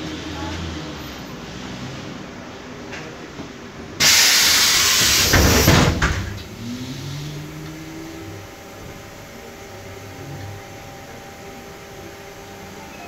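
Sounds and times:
bus door air hiss: 4.0 - 7.4.

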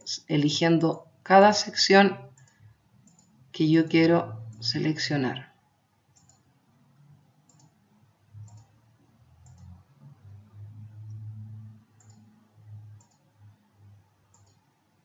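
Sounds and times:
low uneven rumble: 10.0 - 11.9.

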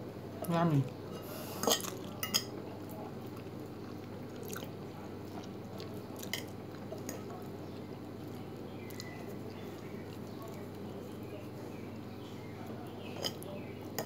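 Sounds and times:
person chewing: 1.4 - 2.2, 3.2 - 10.8.

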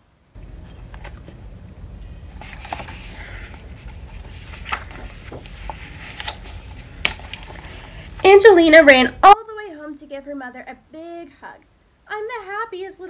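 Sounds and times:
low background hum: 0.0 - 13.0
book pages rustling: 0.4 - 8.4.

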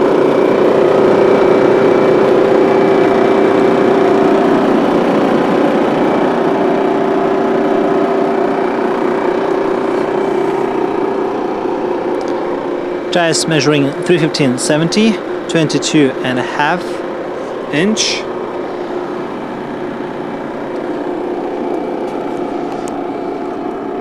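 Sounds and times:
diesel truck engine idling: 0.0 - 24.0.

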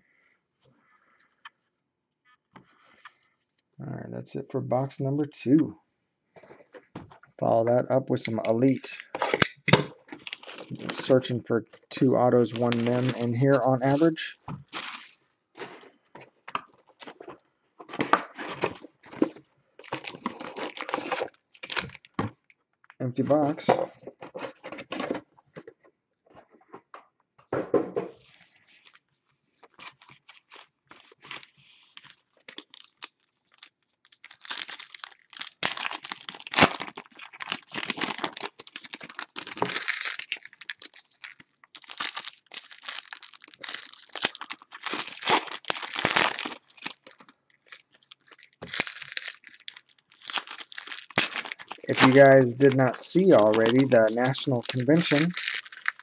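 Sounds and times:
foil wrappers tearing and crinkling: 9.2 - 11.2, 12.5 - 15.8, 19.8 - 22.2, 29.6 - 56.0.

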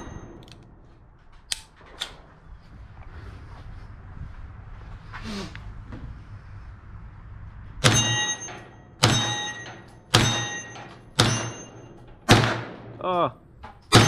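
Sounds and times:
metallic ring of steel target: 0.0 - 0.8, 7.8 - 13.0, 13.8 - 14.0
rifle shots: 9.0 - 13.0.

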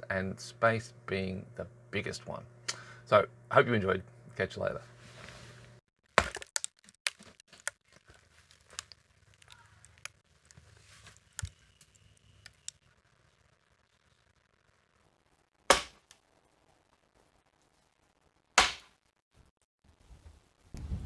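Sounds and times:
wood fibres cracking: 6.0 - 19.0.

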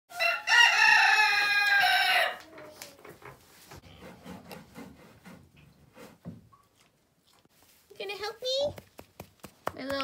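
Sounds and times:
rooster crowing: 0.1 - 2.4.

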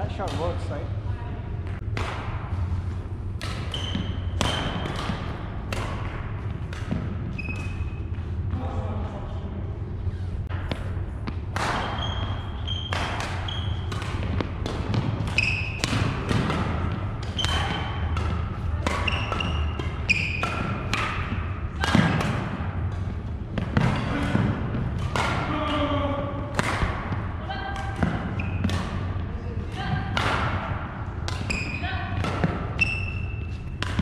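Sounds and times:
rackets hitting shuttlecock: 0.1 - 0.6, 3.4 - 8.1, 10.5 - 34.0
sneaker squeaks: 3.5 - 5.2, 6.7 - 8.4, 11.6 - 14.3, 15.2 - 21.5, 27.9 - 29.0, 31.3 - 34.0.

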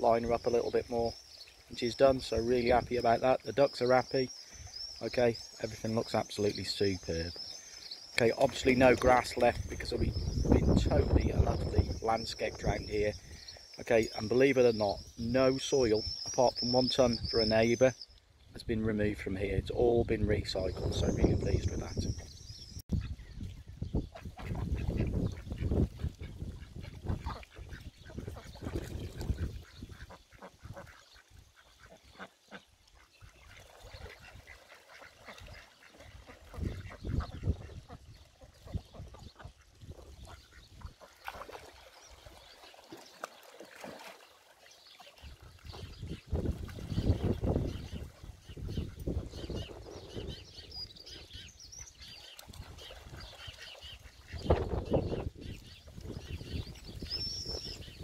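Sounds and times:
ducks quacking: 24.1 - 41.6, 45.2 - 55.4.

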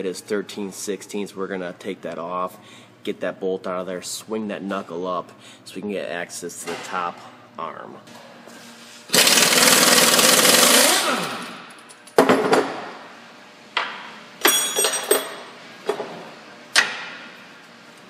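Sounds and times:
impact wrench rattling: 9.1 - 11.1.

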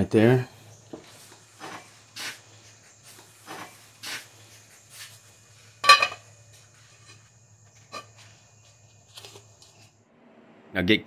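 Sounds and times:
rubbing and scraping on pipe: 1.0 - 8.4.

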